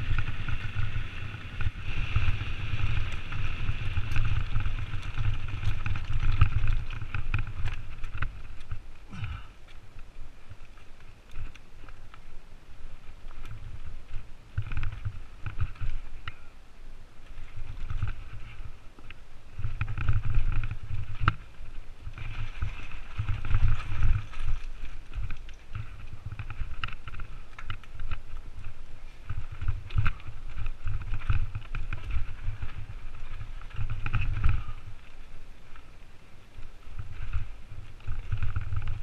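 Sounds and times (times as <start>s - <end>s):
bike knocks and rattles: 0.0s - 9.5s, 13.3s - 16.4s, 19.5s - 35.0s, 37.0s - 39.0s
wind and tyres rumbling on trail: 0.0s - 39.0s.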